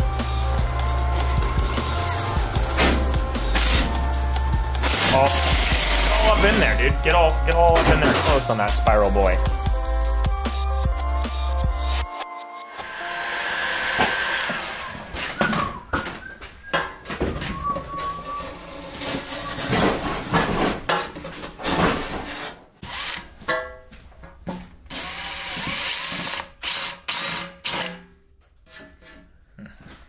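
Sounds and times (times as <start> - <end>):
heat gun blowing: 12.8 - 15.4.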